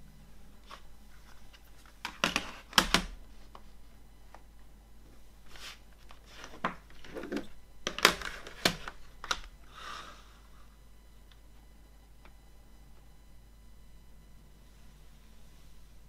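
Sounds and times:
plastic cases clicking on wood: 2.0 - 3.1.

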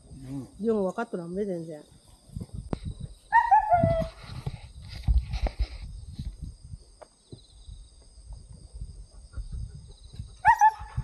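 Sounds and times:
faint insect calls: 0.0 - 11.0.

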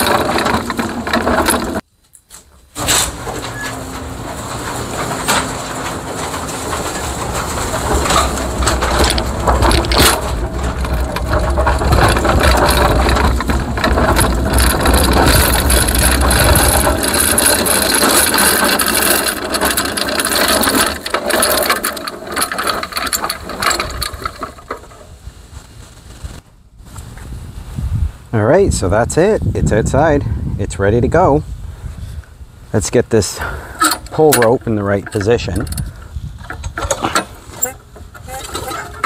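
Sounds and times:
mower deck rattling: 0.0 - 1.9, 2.5 - 25.3, 33.3 - 39.0
mower wheels crunching over ground: 0.0 - 27.3, 32.8 - 39.0
wind rumble on microphone: 25.2 - 33.7, 35.2 - 37.0.

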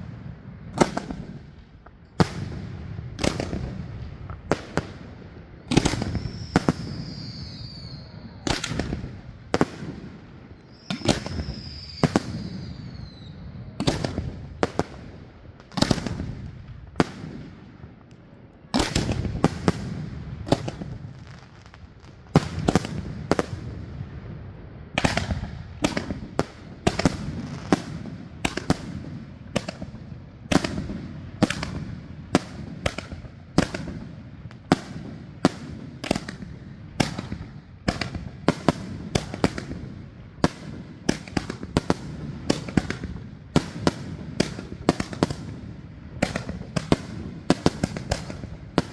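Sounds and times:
falling firework whistle: 5.8 - 9.2, 10.6 - 14.1.

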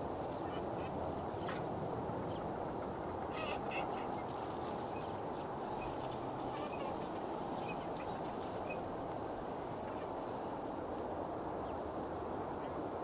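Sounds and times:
steady background noise: 0.0 - 13.0
coots calling: 3.2 - 9.1.

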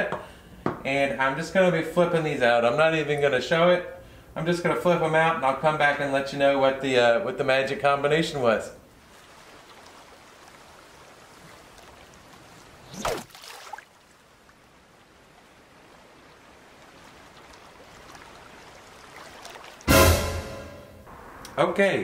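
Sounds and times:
water lapping in shallows: 8.8 - 19.9.

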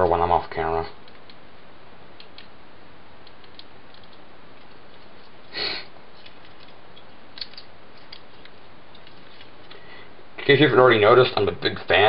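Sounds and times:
steady hiss: 0.2 - 12.0
plastic toy parts clicking: 6.2 - 9.8.

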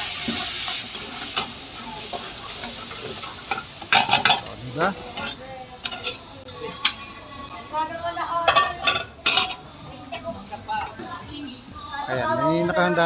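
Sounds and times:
metal utensils scraping a wok: 0.0 - 7.2, 8.4 - 9.7
broth sizzling in a wok: 0.0 - 11.2
steel bowl clanking: 3.0 - 4.5.

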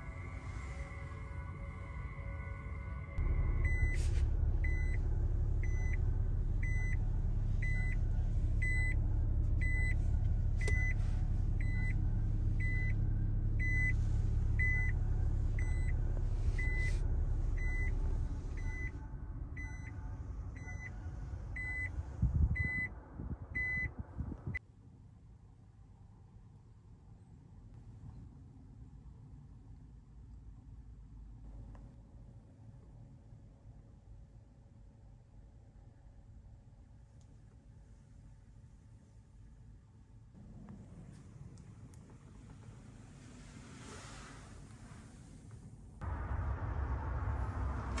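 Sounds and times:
low vehicle rumble: 0.0 - 24.6, 40.4 - 48.0
short high reverse beeps: 3.2 - 6.0, 6.6 - 7.0, 7.6 - 8.0, 10.6 - 11.0, 11.6 - 12.0, 13.6 - 14.0, 14.6 - 15.0, 15.6 - 19.0.

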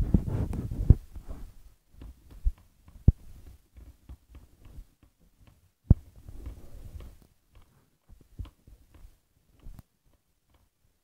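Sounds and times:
sharp knocks and clicks: 2.0 - 10.8.

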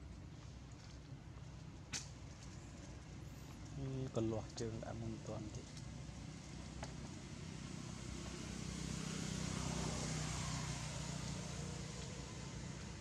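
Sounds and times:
vehicle passing by: 4.1 - 13.0.

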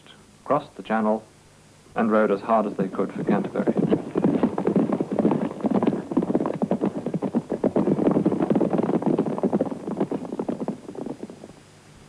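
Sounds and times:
horse hooves galloping: 2.0 - 11.6.

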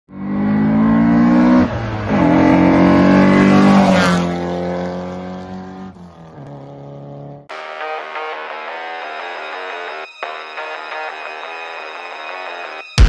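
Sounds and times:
race car engine revving: 0.1 - 7.5.

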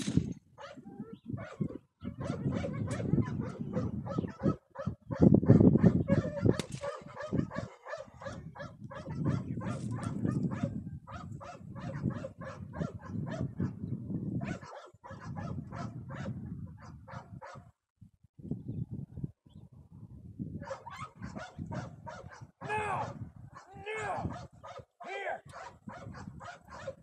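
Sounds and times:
wind rumble on microphone: 0.0 - 27.0.

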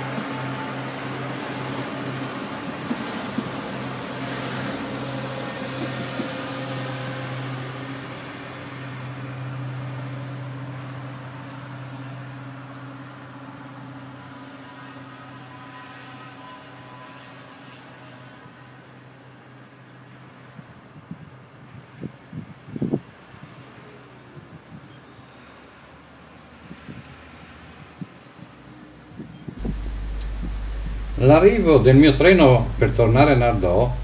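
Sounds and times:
diesel train engine drone: 0.0 - 34.0
sharp clicks: 29.6 - 31.2.

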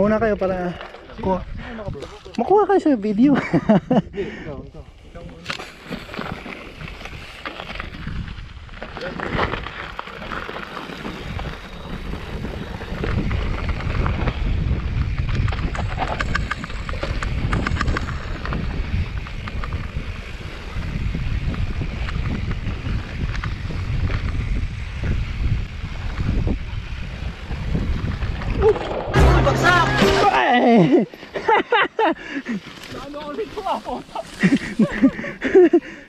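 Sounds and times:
bike clicking and rattling: 0.0 - 4.0, 5.1 - 29.1, 31.1 - 36.0
wind buffeting microphone: 3.4 - 9.8, 11.0 - 29.2
tyres crunching over dirt: 5.3 - 20.4, 32.4 - 35.7.

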